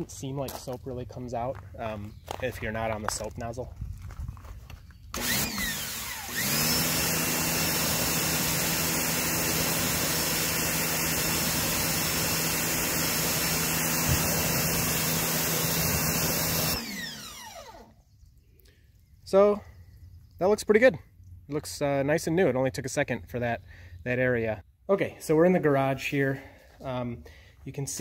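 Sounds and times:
pressure washer motor whining: 5.1 - 18.0.

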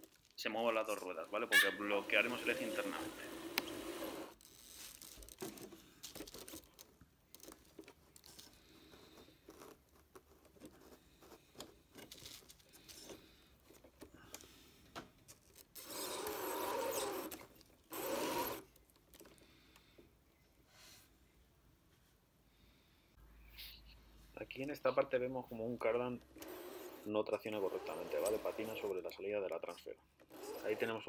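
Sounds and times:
electric motor and gears running: 1.3 - 4.4, 15.8 - 18.6, 26.4 - 28.9, 30.3 - 31.0
clicks and rubbing of toy drivetrain: 15.2 - 19.4, 26.3 - 31.0.

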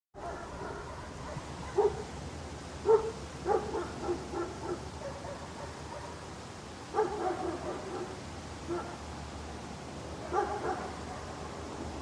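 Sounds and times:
dog barking: 0.2 - 2.1, 2.8 - 6.2, 6.9 - 9.0, 10.2 - 11.6
outdoor ambience: 0.2 - 12.0.

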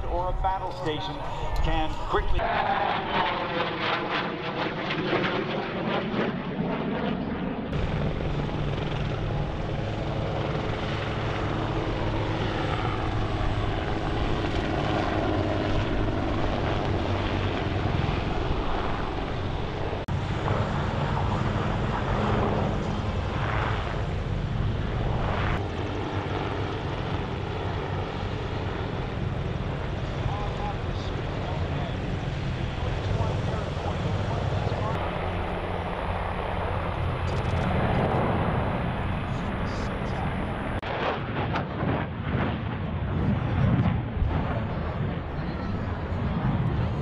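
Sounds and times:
turbine whine: 0.0 - 4.2, 7.7 - 40.9
helicopter rotor drone: 0.0 - 47.0.

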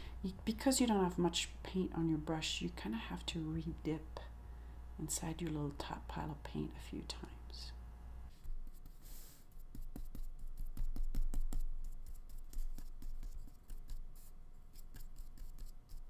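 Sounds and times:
hand rubbing on paper: 8.3 - 16.0
brush stroking and tapping on paper: 8.8 - 16.0.

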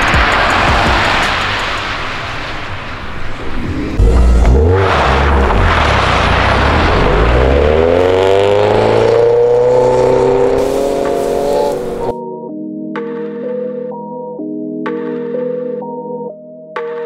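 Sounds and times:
music: 0.0 - 2.0, 3.6 - 5.6, 10.6 - 17.0
rally cars engines revving: 0.0 - 12.1.

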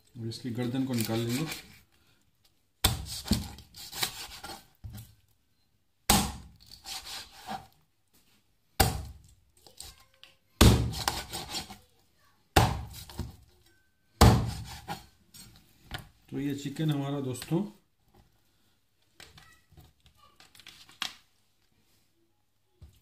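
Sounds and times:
cleaver chopping bone on board: 14.2 - 14.7.

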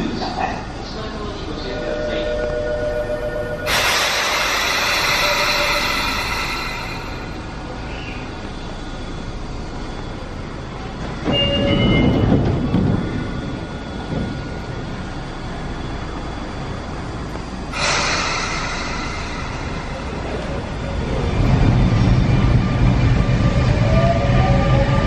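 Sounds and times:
air release hiss: 3.7 - 8.0, 17.7 - 20.8.

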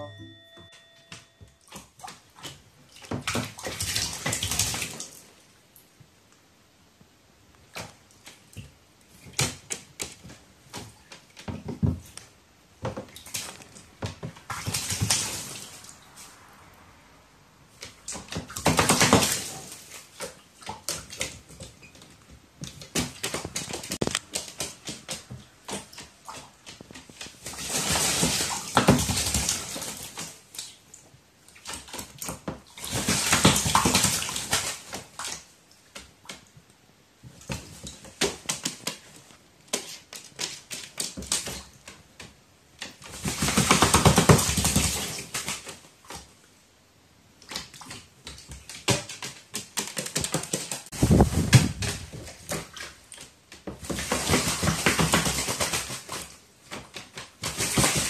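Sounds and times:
bird splashing in water: 1.7 - 5.3, 12.8 - 16.9, 22.6 - 30.8, 31.5 - 36.5, 47.4 - 58.0.

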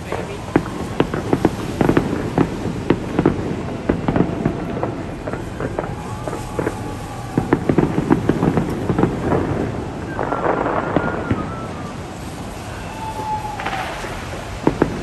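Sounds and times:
fireworks exploding: 0.0 - 15.0.

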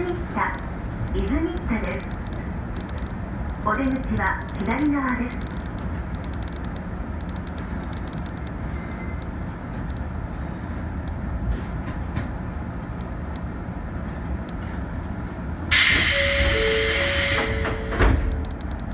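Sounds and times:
electric train humming: 0.0 - 18.9
compressed air hissing: 15.7 - 17.8
short beeps: 15.7 - 18.5.

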